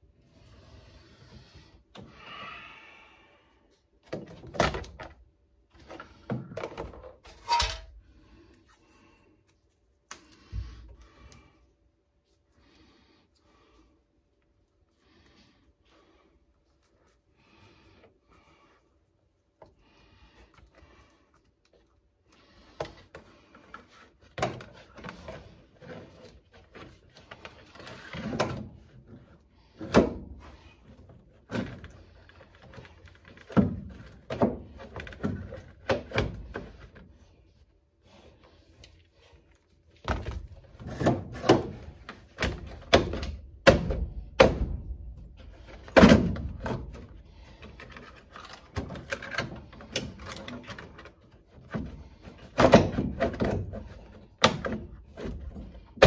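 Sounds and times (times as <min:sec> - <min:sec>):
knocks and clunks of car parts: 0:40.0 - 0:47.1, 0:51.6 - 0:56.0.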